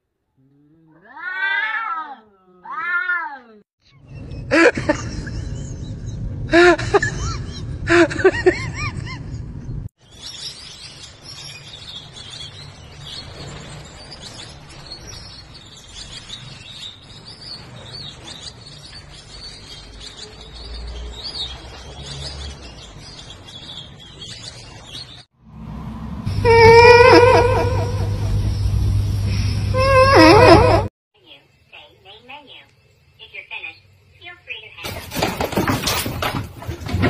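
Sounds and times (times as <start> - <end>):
kitten meowing: 0.9 - 3.4.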